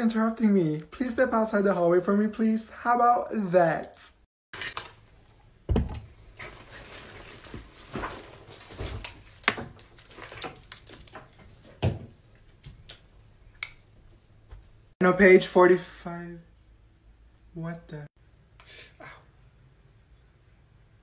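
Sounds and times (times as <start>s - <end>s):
rustling through backpack: 6.3s - 9.4s.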